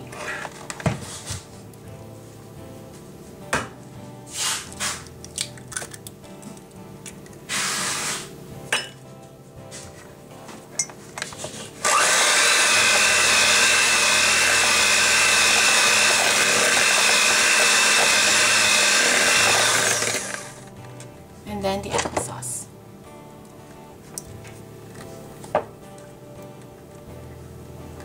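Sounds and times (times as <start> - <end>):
soft background music: 0.0 - 28.0
electric hand mixer whining: 11.8 - 20.7.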